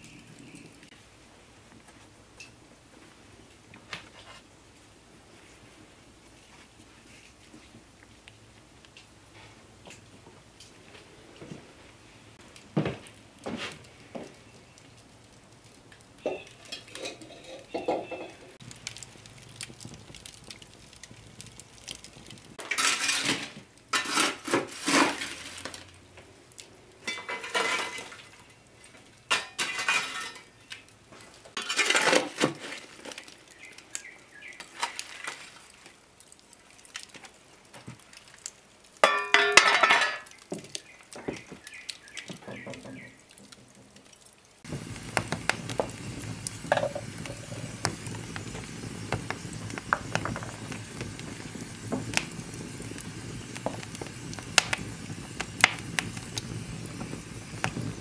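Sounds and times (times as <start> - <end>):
coals clinking on iron: 12.4 - 35.7, 37.8 - 58.0
shovel scraping embers: 16.3 - 20.7, 21.4 - 26.0, 27.0 - 30.8, 31.5 - 35.7, 44.6 - 58.0.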